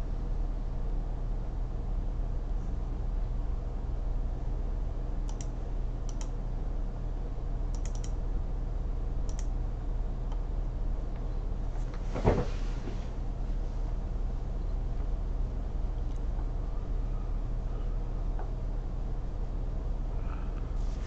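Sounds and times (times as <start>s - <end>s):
steady low hum: 0.0s - 21.0s
keyboard and mouse clicks: 5.3s - 5.5s, 6.1s - 6.3s, 7.7s - 8.2s, 9.3s - 9.5s.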